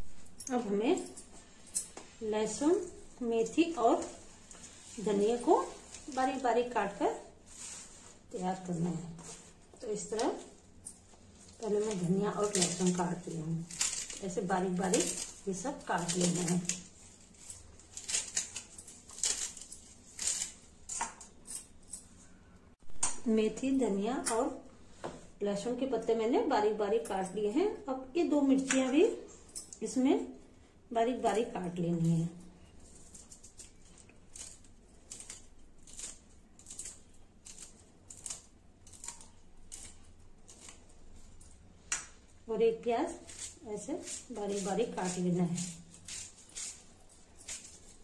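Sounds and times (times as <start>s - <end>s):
knife slicing chillies: 33.6s - 40.9s, 43.1s - 48.0s.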